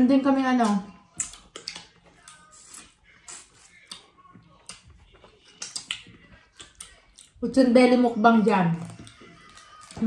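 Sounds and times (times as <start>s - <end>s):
wet lip smacks: 0.6s - 4.9s, 5.5s - 7.3s
chewing clicks: 0.6s - 7.4s.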